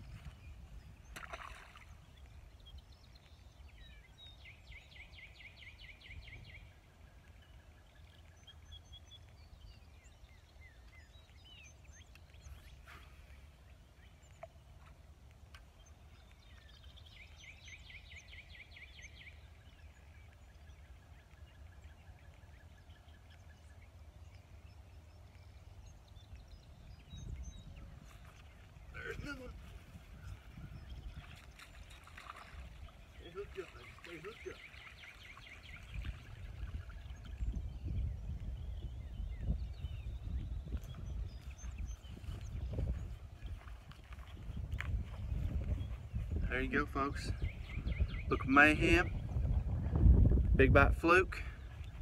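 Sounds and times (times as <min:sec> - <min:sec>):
low wind rumble on microphone: 0:00.0 - 0:12.6, 0:15.8 - 0:33.2, 0:34.7 - 0:52.0
birds chirping: 0:00.0 - 0:52.0.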